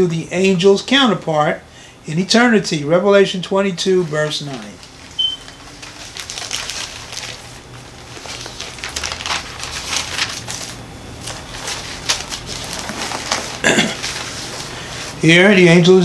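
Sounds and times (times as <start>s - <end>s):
paper pages rustling: 3.7s - 15.6s.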